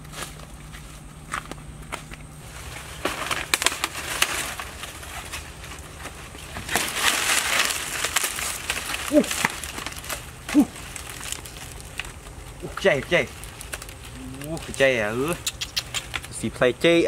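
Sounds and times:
footsteps: 0.0s - 16.4s
dry leaves rustling and crackling: 0.0s - 17.0s
short pitched calls: 14.1s - 16.2s
snaps: 14.8s - 16.4s.

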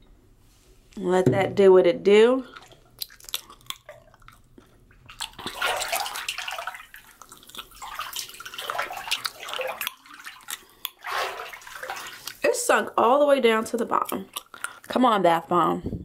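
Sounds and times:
hand splashing bathwater: 2.4s - 12.6s
bath bomb fizzing: 5.0s - 13.0s.

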